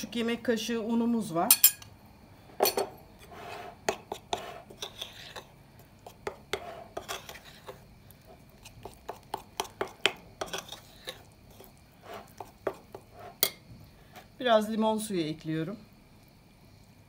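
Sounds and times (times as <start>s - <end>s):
spoon clinking and scraping bowl: 1.5s - 1.9s, 2.6s - 7.8s, 8.6s - 13.6s.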